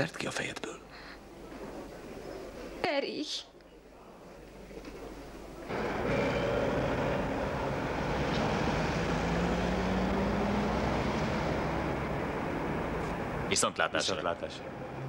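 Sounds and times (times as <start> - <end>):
street traffic noise: 5.0 - 15.0
car engine running: 5.7 - 13.6.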